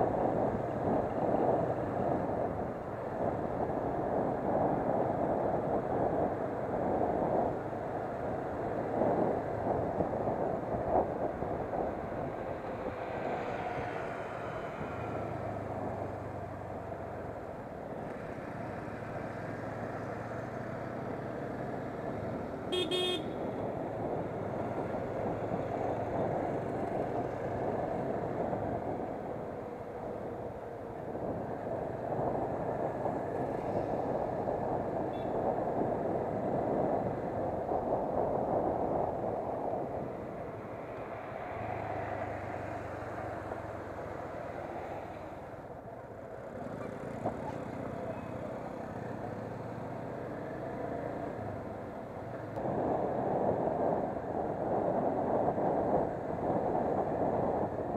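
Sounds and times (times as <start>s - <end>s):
motorcycle engine hum: 0.0s - 37.6s
wind on microphone: 0.0s - 57.9s
vehicle horn beep: 22.7s - 23.4s.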